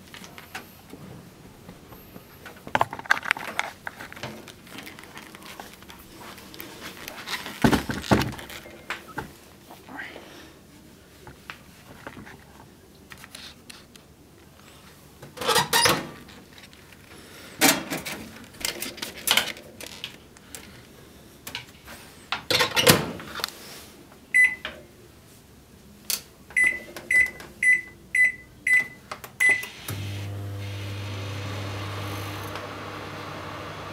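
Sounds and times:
microwave keypad beeps: 0:24.4 - 0:24.6, 0:26.6 - 0:29.9
microwave humming: 0:29.5 - 0:33.9.

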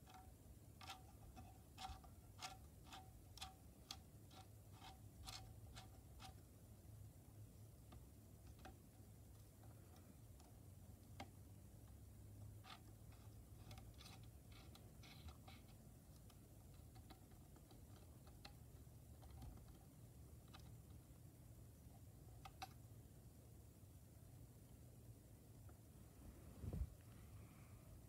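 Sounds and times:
small clicks and taps: 0:21.9 - 0:22.8.

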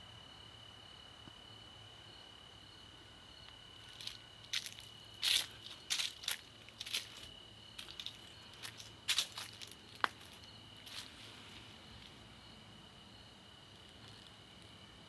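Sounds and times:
high insect drone: 0:00.0 - 0:15.0
footsteps on dirt path: 0:03.8 - 0:11.5.

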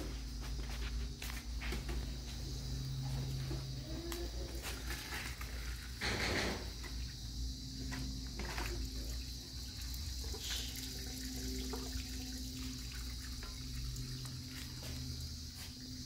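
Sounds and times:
water splashing into colander: 0:08.4 - 0:16.0.

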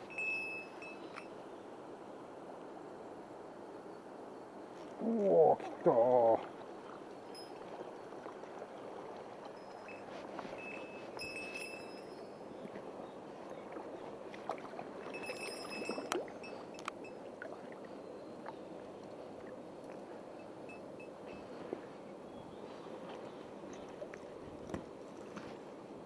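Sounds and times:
faint clicks: 0:16.8 - 0:17.0.

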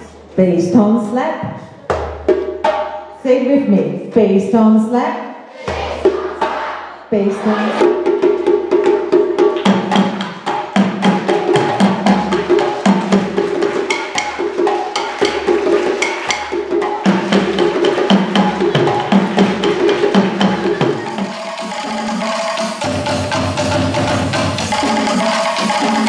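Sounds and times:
hand drumming slaps and tones: 0:08.1 - 0:21.3.

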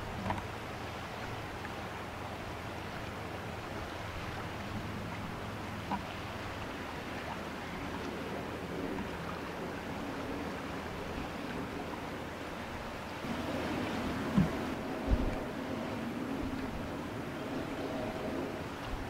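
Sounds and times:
low drone of ship engines: 0:00.0 - 0:19.0
wind: 0:00.0 - 0:19.0
hiss of water: 0:13.1 - 0:19.0.

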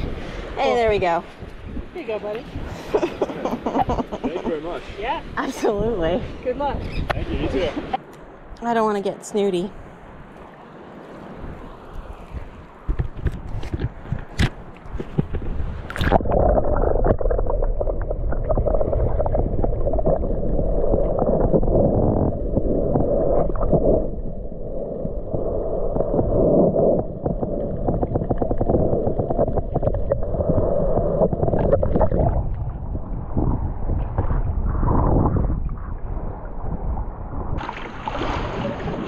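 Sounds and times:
muffled underwater rushing water: 0:09.8 - 0:39.0.

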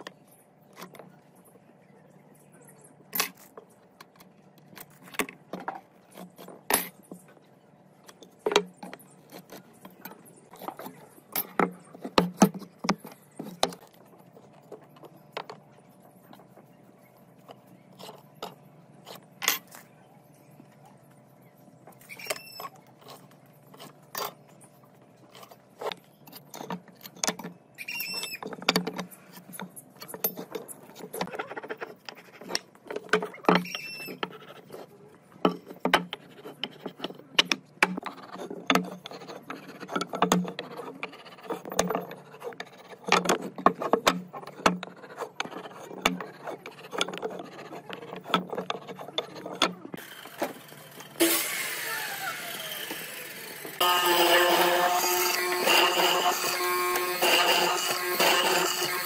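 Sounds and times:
tools tapping on wooden boards: 0:28.4 - 0:34.4, 0:35.4 - 0:50.6.

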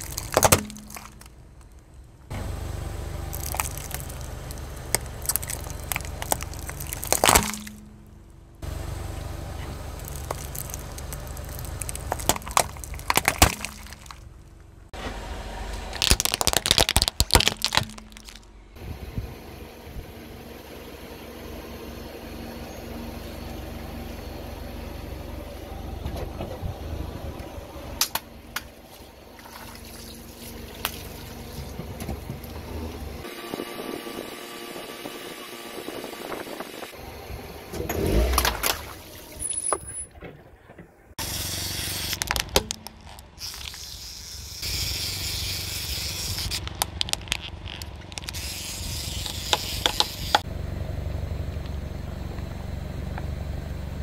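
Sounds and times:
plastic cracking under car tyre: 0:00.0 - 0:02.0, 0:03.3 - 0:07.9, 0:09.9 - 0:14.7, 0:15.7 - 0:18.5, 0:42.0 - 0:44.1, 0:45.8 - 0:50.5
car engine running: 0:00.0 - 0:54.0.

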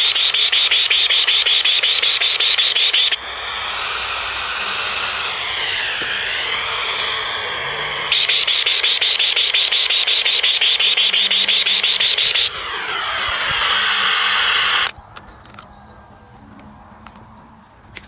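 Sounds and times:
radio static with pulsing whine: 0:00.0 - 0:14.9
hiss with wavering whistles: 0:00.0 - 0:15.0.

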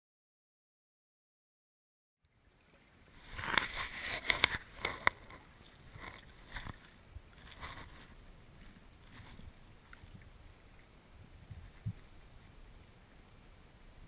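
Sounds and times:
low water hiss: 0:02.2 - 0:14.0
underwater clicks and knocks: 0:03.3 - 0:12.1.

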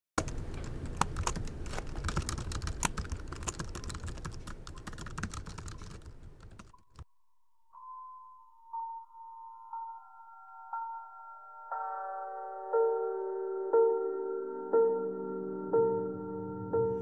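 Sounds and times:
rapid typing on laptop keyboard: 0:00.2 - 0:07.0
soft held musical tone: 0:03.6 - 0:17.0.

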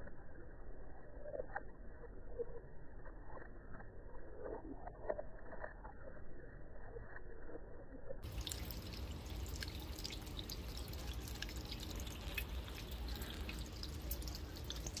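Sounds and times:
rainwater trickling down metal cups: 0:08.2 - 0:15.0.

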